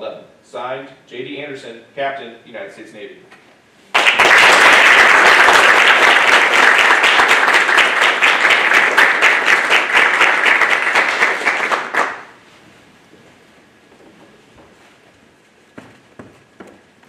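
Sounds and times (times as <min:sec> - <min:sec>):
audience applauding: 0:03.9 - 0:12.4.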